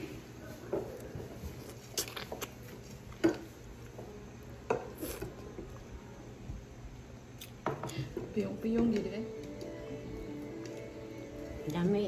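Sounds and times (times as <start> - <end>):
wet lip smacks eating fruit: 1.6 - 3.2, 7.4 - 7.6.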